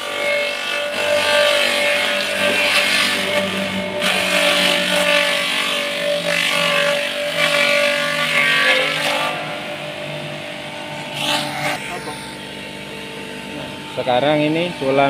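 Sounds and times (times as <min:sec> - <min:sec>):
leaves being shredded: 0:00.0 - 0:10.4, 0:11.1 - 0:12.3
motor humming: 0:00.0 - 0:15.0.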